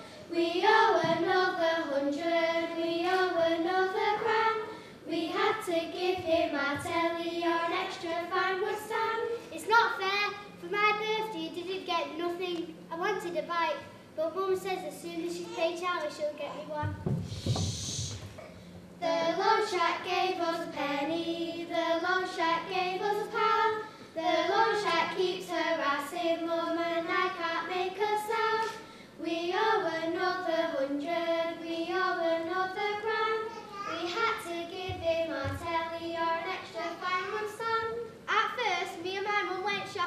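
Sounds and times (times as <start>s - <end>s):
child singing slow melody: 33.1s - 37.9s.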